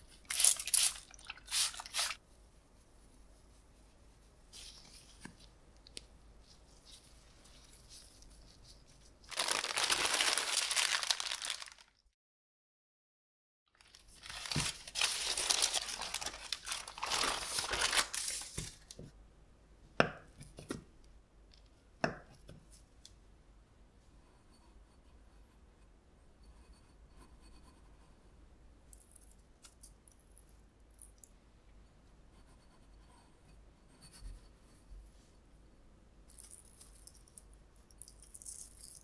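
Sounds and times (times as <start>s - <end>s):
plastic wrap crinkling: 0.3s - 2.2s, 9.2s - 12.1s, 13.7s - 19.0s.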